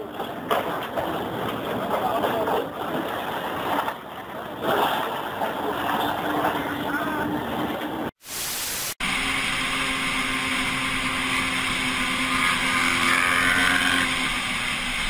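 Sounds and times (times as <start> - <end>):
static hiss burst: 8.2 - 9.0
road noise: 9.0 - 15.0
vehicle engine hum: 9.0 - 15.0.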